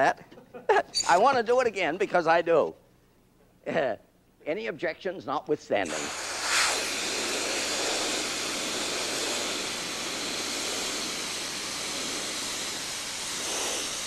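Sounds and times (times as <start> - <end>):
compressed air hissing: 5.8 - 14.0.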